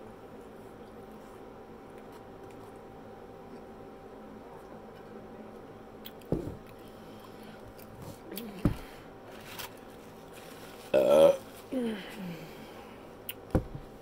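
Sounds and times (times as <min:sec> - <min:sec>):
soft thumps: 0:06.3 - 0:06.6, 0:13.5 - 0:13.9.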